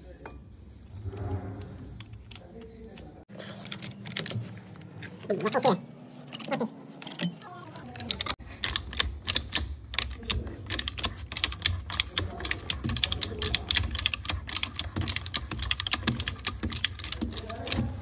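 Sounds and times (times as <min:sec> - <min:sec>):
ratchet clicking: 0:08.0 - 0:18.0.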